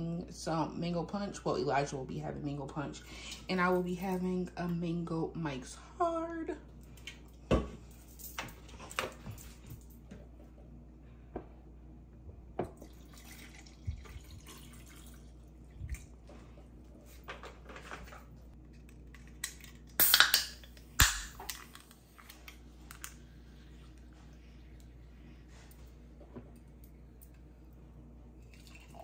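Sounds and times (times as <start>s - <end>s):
juice pouring into plastic cup: 12.8s - 15.4s, 28.4s - 29.0s
drink can cracked open: 19.4s - 21.8s.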